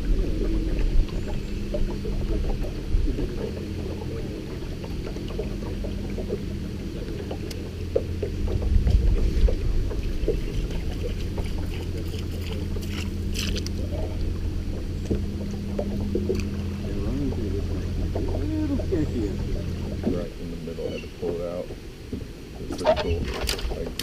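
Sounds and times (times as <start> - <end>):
electric trolling motor humming: 0.0 - 20.4
water and hull noise: 0.0 - 24.0.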